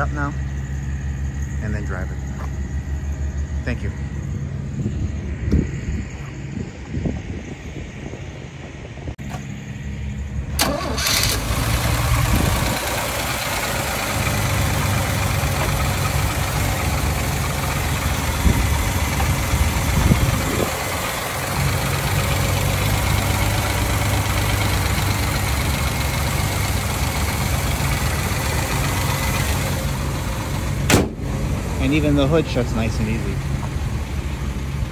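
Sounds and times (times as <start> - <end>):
car engine starting and idling: 9.1 - 34.9.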